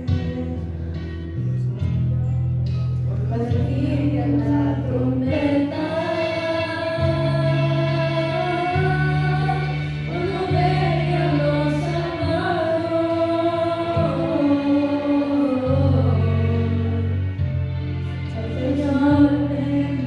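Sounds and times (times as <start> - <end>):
music with held low notes: 0.0 - 20.0
children singing into microphones: 3.5 - 17.2, 18.3 - 20.0.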